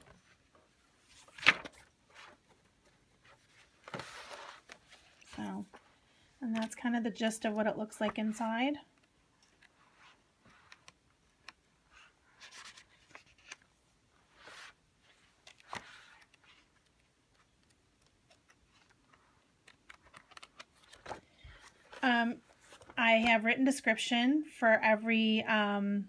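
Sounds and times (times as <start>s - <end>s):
paper rustling: 0.0s - 5.8s, 9.4s - 23.0s.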